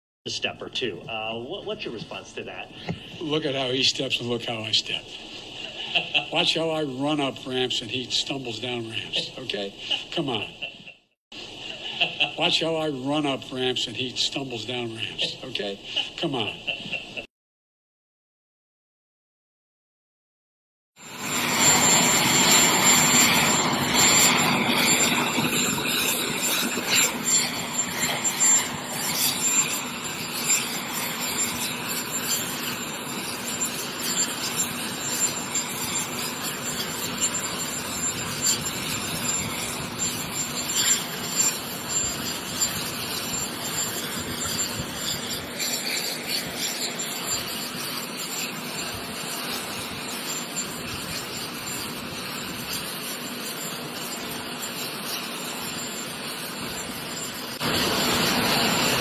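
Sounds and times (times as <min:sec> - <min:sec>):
jet engine rushing with whine: 0:21.0 - 0:59.0.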